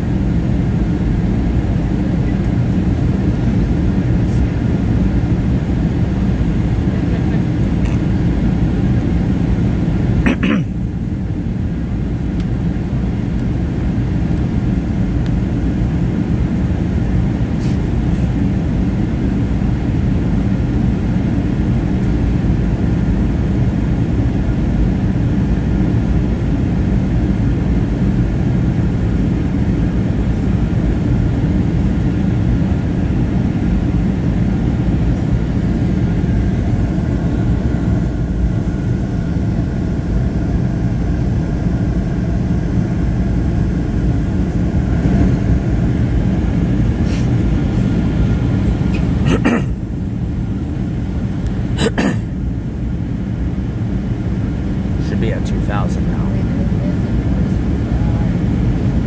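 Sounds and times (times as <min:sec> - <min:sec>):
airplane cabin rumble: 0:00.0 - 0:59.0
faint engine tones: 0:28.2 - 0:59.0.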